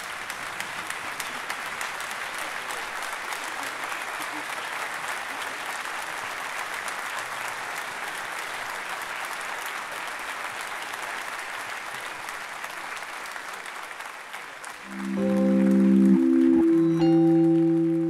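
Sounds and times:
audience applauding: 0:00.0 - 0:18.0
held musical notes: 0:14.9 - 0:18.0.

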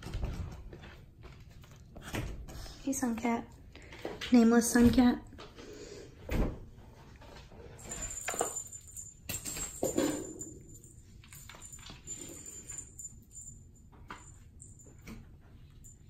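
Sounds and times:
small bell jingling: 0:07.8 - 0:15.1.

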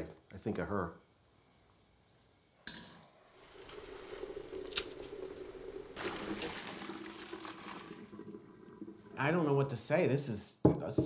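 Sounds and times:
water splashing into colander: 0:03.4 - 0:09.4.

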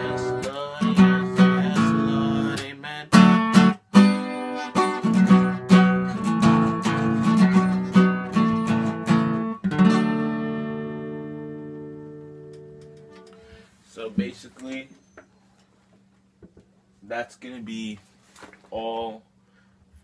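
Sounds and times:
acoustic guitar strumming chords: 0:00.0 - 0:14.4.

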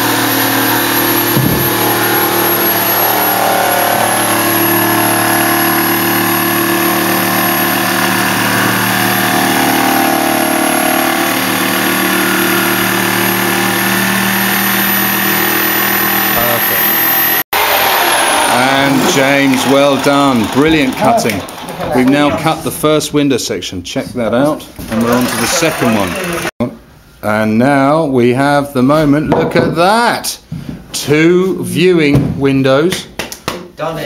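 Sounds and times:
jigsaw cutting wood: 0:00.0 - 0:22.3, 0:24.9 - 0:26.5.

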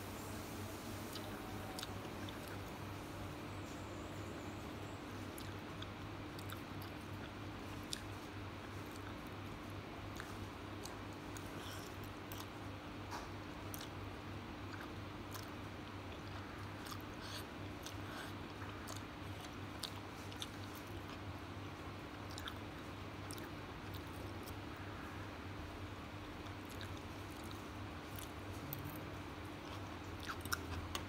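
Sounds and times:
steady low hum: 0:00.0 - 0:31.0
slurping and chewing noodles: 0:05.4 - 0:12.6, 0:14.7 - 0:21.2, 0:22.1 - 0:24.8, 0:26.4 - 0:28.8, 0:29.4 - 0:31.0.

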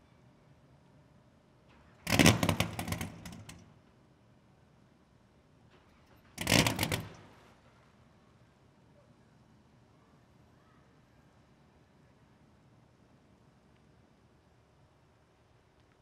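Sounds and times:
boat engine cranking and popping: 0:02.1 - 0:03.6, 0:06.4 - 0:07.3.

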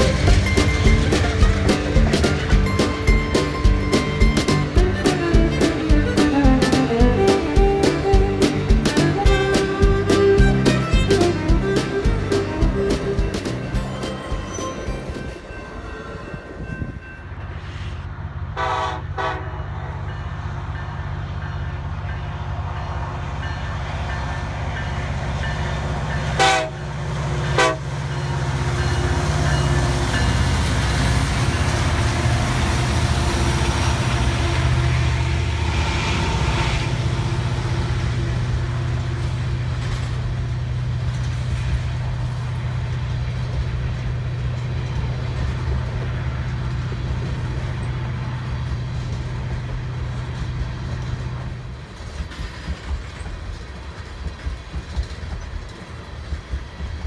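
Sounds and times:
locomotive engine rumble: 0:00.0 - 0:57.0
train cars rolling on rails: 0:00.0 - 0:57.0
train horn toots: 0:05.2 - 0:13.3, 0:18.5 - 0:19.8, 0:26.3 - 0:26.9, 0:27.5 - 0:28.0.

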